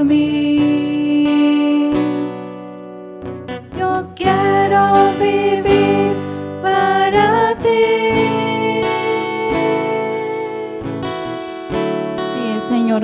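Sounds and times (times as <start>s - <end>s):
strummed acoustic guitar: 0.0s - 13.0s
voices singing a worship song: 3.7s - 11.2s.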